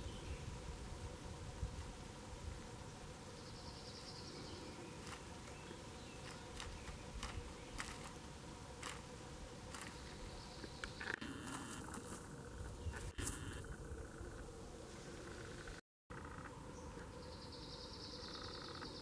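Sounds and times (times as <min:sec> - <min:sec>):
faint buzz: 0:00.0 - 0:19.0
quiet forest background: 0:00.0 - 0:19.0
faint sharp clicks of seeds: 0:05.0 - 0:08.2, 0:08.8 - 0:09.1, 0:09.7 - 0:12.2.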